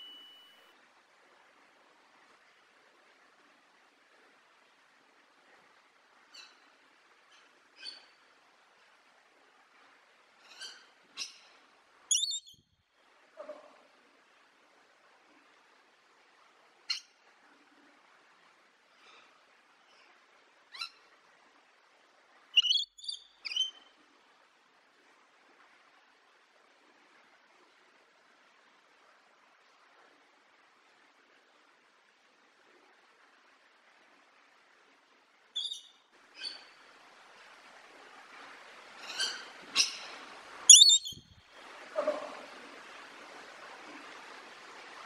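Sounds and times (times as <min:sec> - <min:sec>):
faint background hiss: 0:00.0 - 0:45.0
lorikeet shrill calls: 0:12.1 - 0:12.5, 0:22.6 - 0:23.7, 0:40.7 - 0:41.3
parrot giving sharp calls: 0:40.7 - 0:41.2.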